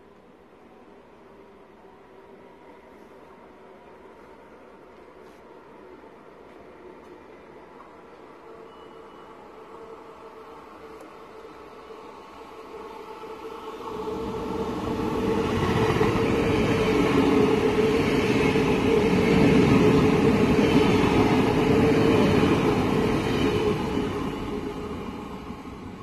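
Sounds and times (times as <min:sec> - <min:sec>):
electric train passing: 0:05.8 - 0:26.0.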